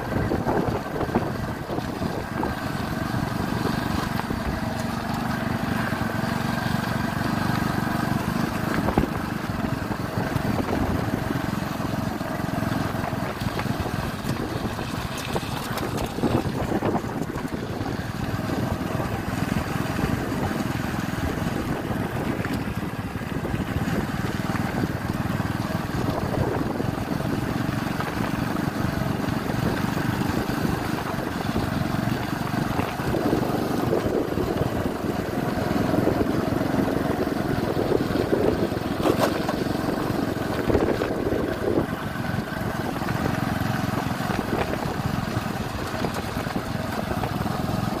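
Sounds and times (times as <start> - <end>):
small vehicle engine running: 0.0 - 48.0.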